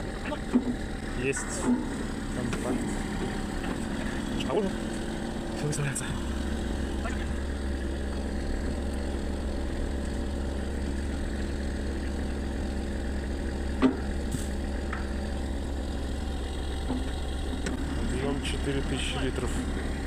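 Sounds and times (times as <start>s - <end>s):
truck engine idling: 0.0s - 20.0s.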